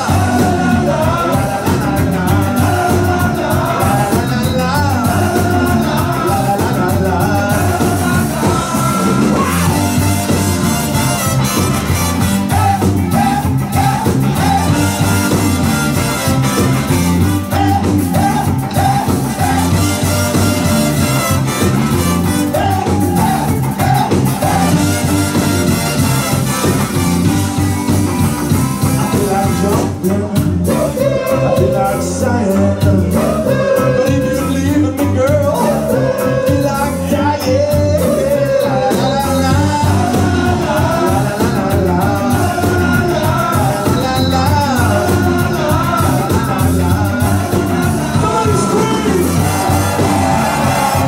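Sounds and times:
person singing: 0.0 - 10.5, 28.8 - 51.0
trombone: 0.0 - 36.9, 38.0 - 51.0
drums: 0.0 - 51.0
electric guitar: 0.0 - 51.0
saxophone: 0.0 - 51.0
trumpet: 7.4 - 30.1, 42.2 - 51.0.

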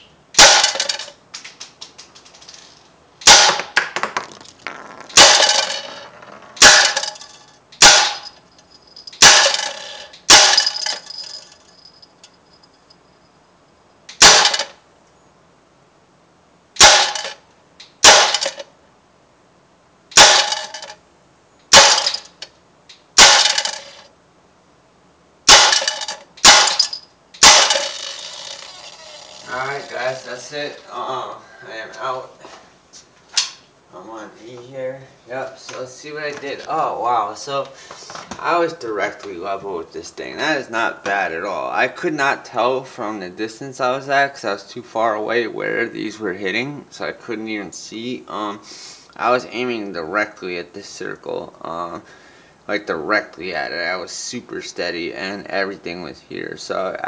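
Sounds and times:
air rifle shots popping: 0.4 - 1.8, 3.2 - 6.0, 6.6 - 7.2, 7.8 - 8.3, 9.1 - 11.0, 14.1 - 14.8, 16.8 - 17.4, 18.0 - 18.6, 20.1 - 20.6, 21.7 - 22.3, 23.2 - 24.0, 25.5 - 28.2.

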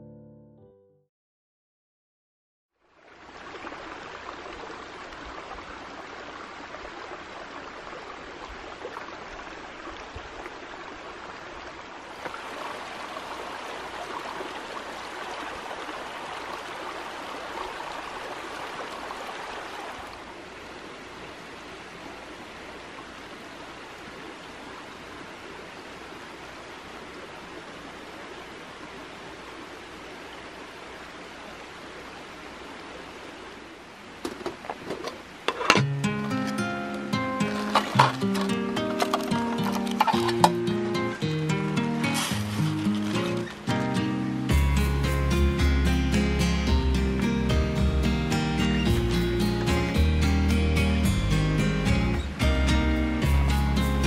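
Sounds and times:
stream running over rocks: 2.8 - 54.0.

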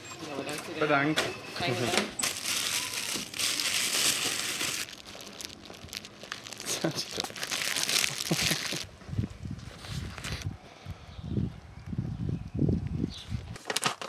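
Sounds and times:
crinkling and rustling: 1.6 - 8.9, 9.6 - 10.5, 13.4 - 14.0.

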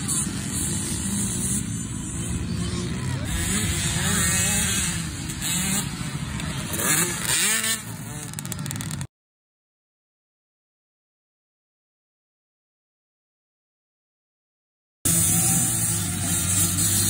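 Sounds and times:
dirt bike engines revving: 0.0 - 9.1, 15.1 - 17.0.

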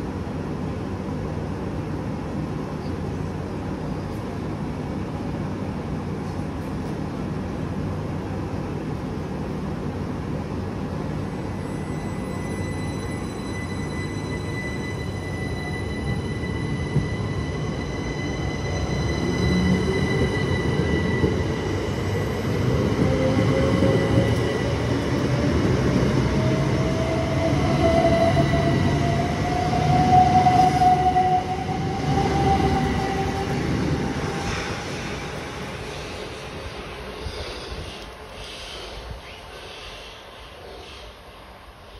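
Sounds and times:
steady high whine: 11.3 - 38.4
train wheels rumbling: 11.5 - 40.0.

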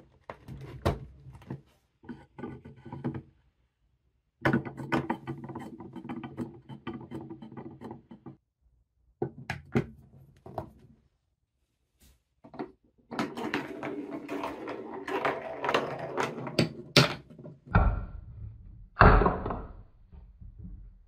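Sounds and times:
ball rolling on wooden track: 0.4 - 3.3, 4.4 - 8.4, 12.4 - 21.0.

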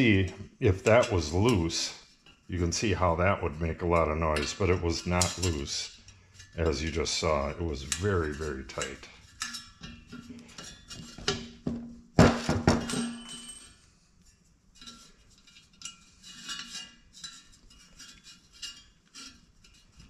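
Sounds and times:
metal clanks: 0.0 - 13.8
wrench clinking on metal: 4.0 - 11.6, 12.8 - 13.9.

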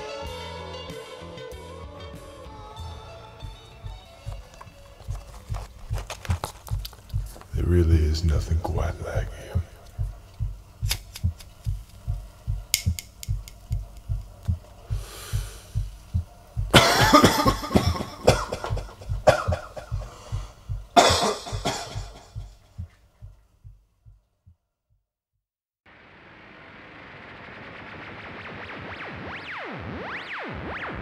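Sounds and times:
low drum beat: 2.8 - 24.3.

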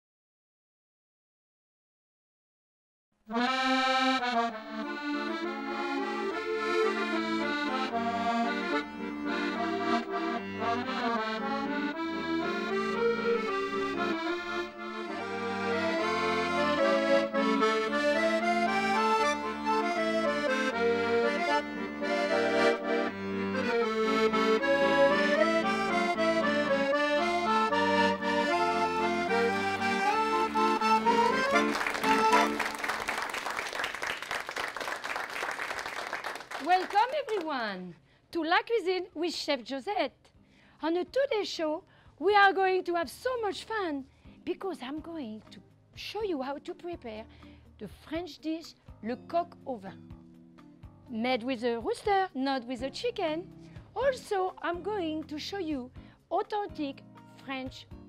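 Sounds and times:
lively accordion music: 3.3 - 34.2.

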